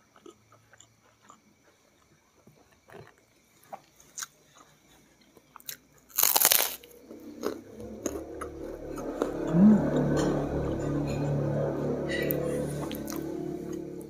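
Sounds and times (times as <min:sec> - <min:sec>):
chewing with crackles: 0:00.0 - 0:08.4
cracker crunch: 0:00.0 - 0:08.4.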